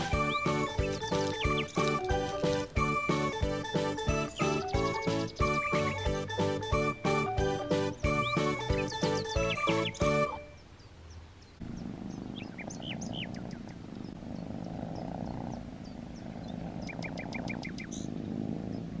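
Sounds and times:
kittens purring: 0.0s - 6.0s, 11.6s - 19.0s
quick clicking trill: 0.0s - 6.0s
small birds chirping: 0.0s - 19.0s.

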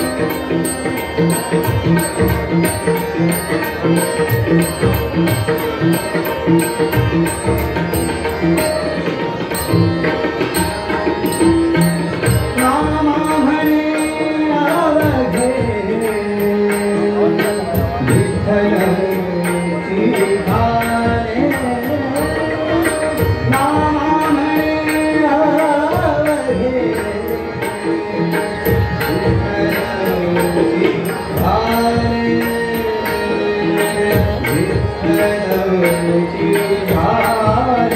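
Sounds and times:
harmonium: 0.0s - 37.9s
tabla drumming: 0.0s - 37.9s
man singing: 12.4s - 37.9s.

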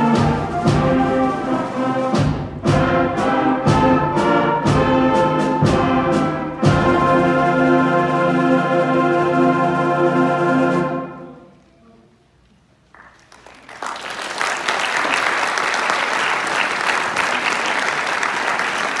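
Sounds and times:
audience applause: 13.0s - 19.0s.

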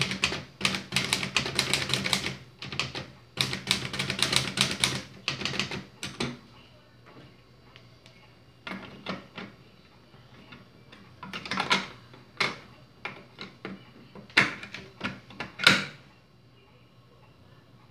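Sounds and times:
typewriter clunks and clicks: 0.0s - 6.4s, 14.3s - 16.0s
typewriter keystrokes clicking: 0.0s - 6.4s.

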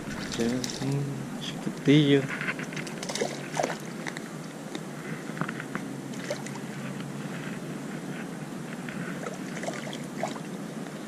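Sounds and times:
small waves lapping at shore: 2.8s - 4.7s, 9.1s - 10.6s.

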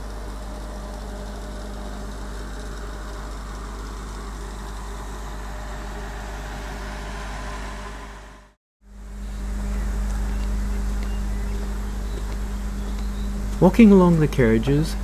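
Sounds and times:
steam locomotive hiss and hum: 0.0s - 8.6s.

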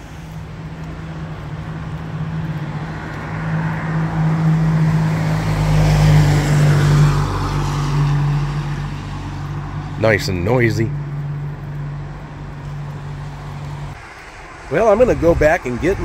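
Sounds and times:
tyre hiss on wet road: 0.0s - 0.6s
low engine hum: 0.0s - 16.0s.

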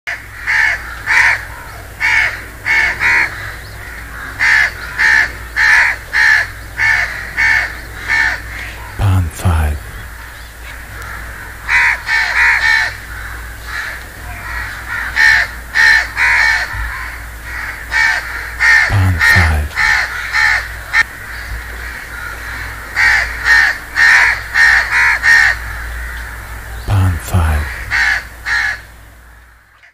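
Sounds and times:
crows cawing: 0.1s - 9.0s, 10.2s - 18.9s, 19.8s - 26.6s, 27.7s - 29.9s.

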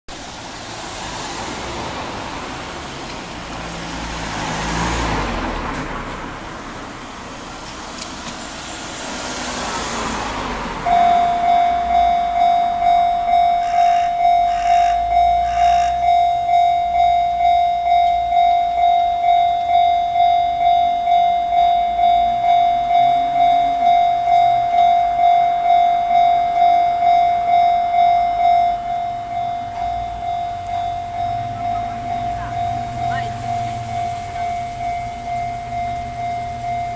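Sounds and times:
road traffic passing: 0.1s - 36.9s
level-crossing warning bell: 10.8s - 36.9s.

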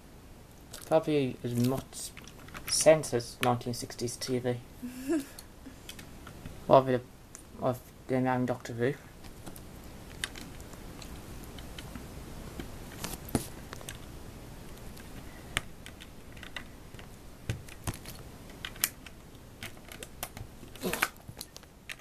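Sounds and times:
plastic pieces clicking: 15.0s - 22.0s.

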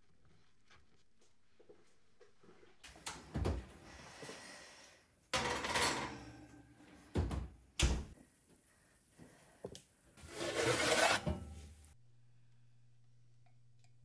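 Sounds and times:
metal sliding scrape: 10.2s - 11.7s.

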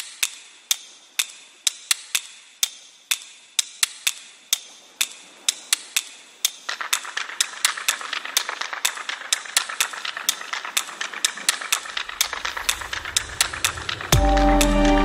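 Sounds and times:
quick fluttering ticks: 5.0s - 14.1s.

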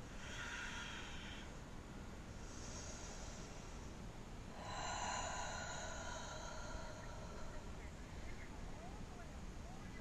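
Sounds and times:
person breathing through nose: 0.1s - 1.6s, 2.4s - 7.8s.

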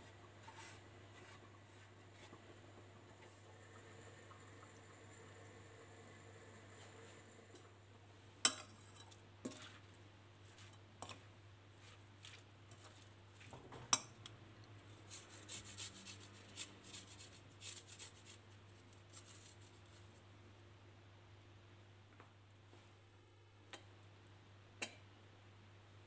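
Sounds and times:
spoon tossing salad in bowl: 8.5s - 14.4s.

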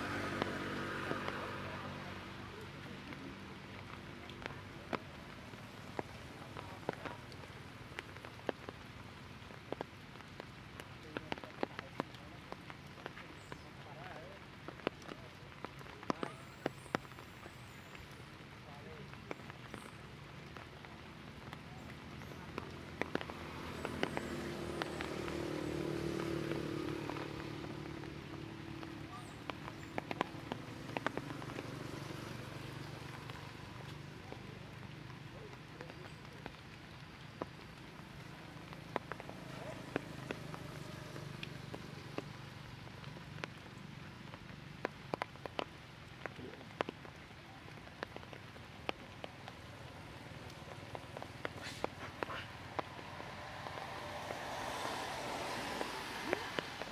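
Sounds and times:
distant vehicle engine hum: 0.0s - 8.7s, 9.6s - 56.9s
water drops ticking on leaves: 0.0s - 56.9s.

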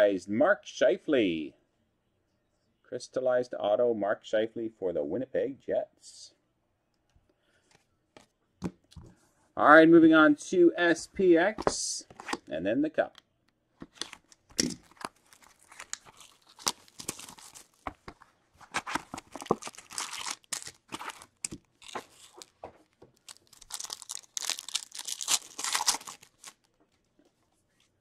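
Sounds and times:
foil packs crinkling and tearing: 14.0s - 17.8s, 18.7s - 26.7s.

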